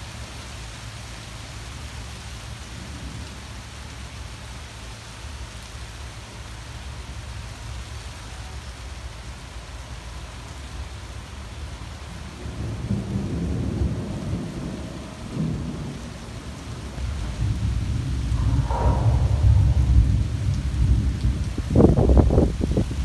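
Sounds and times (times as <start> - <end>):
steady rain: 0.0 - 23.0
thunder rumbling: 12.0 - 23.0.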